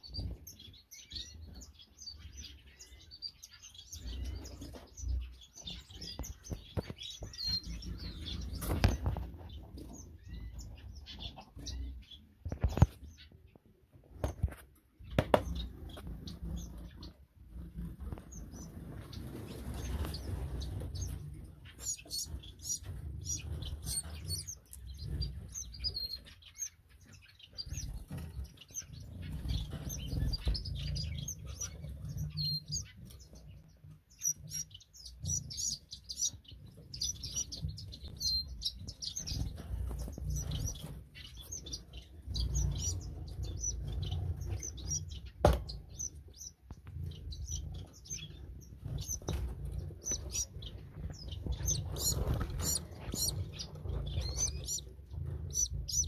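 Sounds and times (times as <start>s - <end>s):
finches chirping and twittering: 0.0s - 56.0s.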